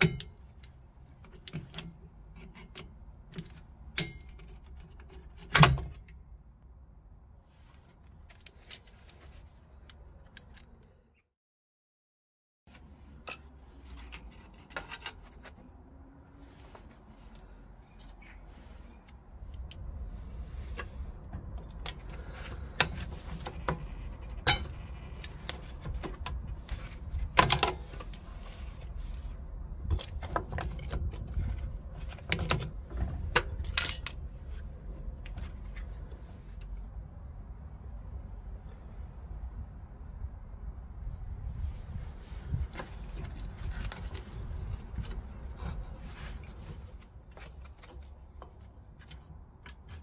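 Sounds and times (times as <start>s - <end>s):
pliers clinking on metal: 33.4s - 34.2s.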